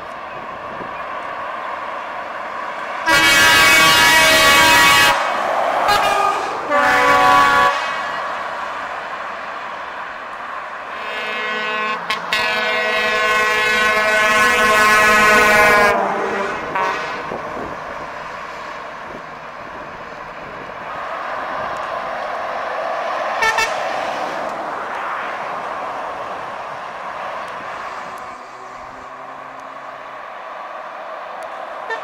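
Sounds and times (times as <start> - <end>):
motorway traffic: 0.0 - 32.0
truck air horn blast: 3.0 - 8.3, 10.9 - 17.4, 23.4 - 23.9.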